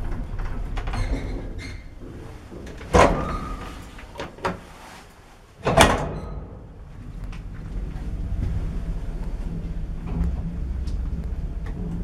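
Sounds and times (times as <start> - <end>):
lift running rumble: 0.0 - 12.0
metal door bang: 2.6 - 4.4, 5.6 - 6.7.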